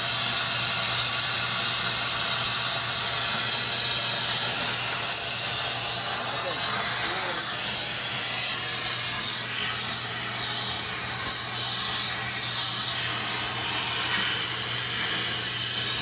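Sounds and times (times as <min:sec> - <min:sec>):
torch flame hissing: 0:00.0 - 0:16.0.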